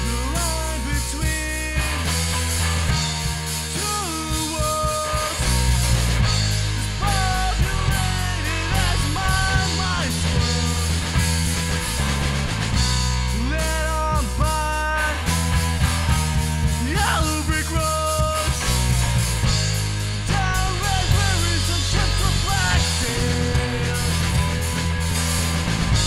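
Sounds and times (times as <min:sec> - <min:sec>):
punk rock band playing live: 0:00.0 - 0:26.0.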